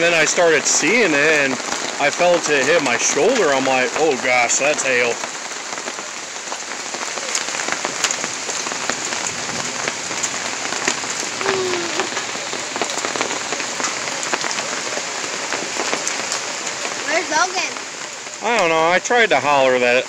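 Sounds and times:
hailstones ticking: 0.0s - 20.0s
heavy rain hissing: 0.0s - 20.0s.

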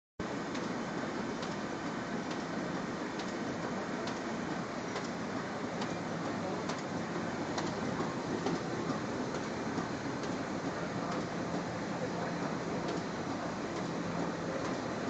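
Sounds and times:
sharp mechanical tick: 0.5s - 0.8s, 1.4s - 1.6s, 2.2s - 2.6s, 3.2s - 3.4s, 4.0s - 4.3s, 4.9s - 5.2s, 6.6s - 6.9s, 12.8s - 13.1s.

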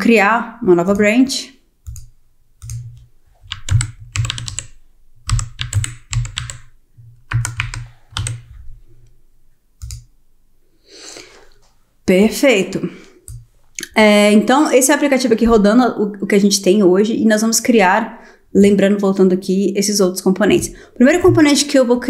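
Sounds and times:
computer keyboard typing: 1.8s - 6.7s, 7.3s - 8.5s, 9.8s - 10.1s.

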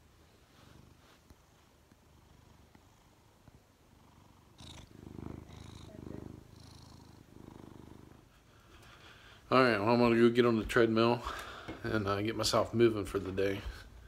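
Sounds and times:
cat purring: 0.0s - 9.2s.

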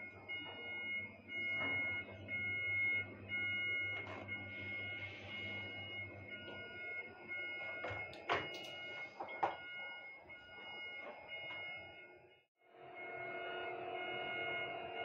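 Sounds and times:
machinery rumble: 0.0s - 15.0s
overhead crane whine: 0.0s - 15.0s.

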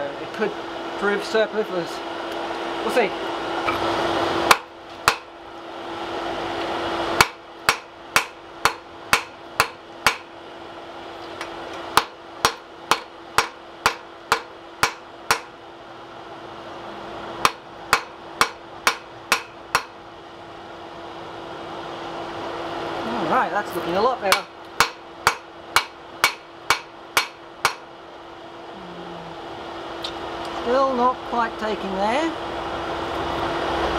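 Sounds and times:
hammer striking steel on anvil: 4.5s - 5.3s, 7.2s - 10.3s, 12.0s - 15.6s, 17.4s - 20.0s, 24.3s - 27.9s.

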